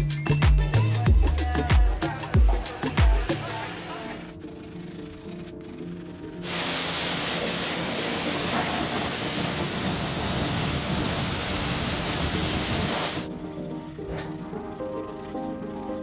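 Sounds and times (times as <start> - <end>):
pressure washer spraying: 6.4 - 13.3.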